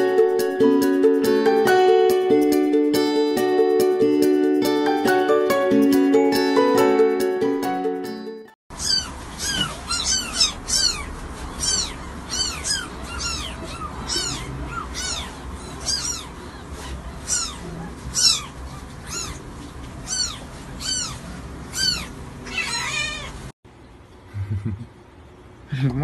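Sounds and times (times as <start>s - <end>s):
kitten mewing: 8.8s - 23.4s.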